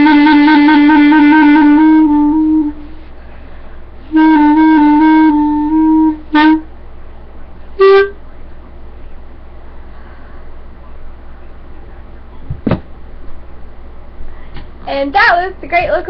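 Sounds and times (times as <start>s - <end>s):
solo clarinet playing: 0.0s - 3.1s, 4.1s - 6.7s, 7.8s - 8.2s.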